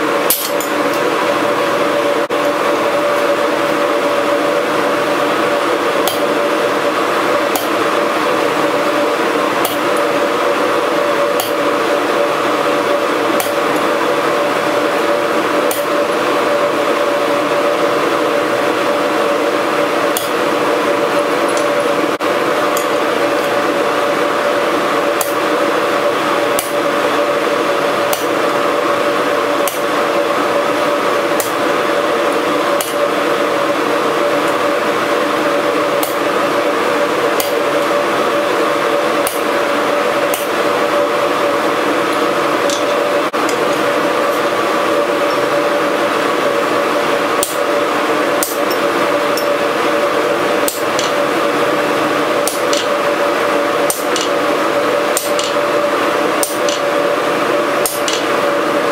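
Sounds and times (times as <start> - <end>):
machinery roar and hum: 0.0 - 58.9
hammer striking steel on anvil: 0.2 - 1.0, 6.0 - 6.3, 7.5 - 7.7, 11.4 - 11.6, 13.4 - 13.8, 42.7 - 43.0, 47.4 - 47.6, 56.4 - 56.9.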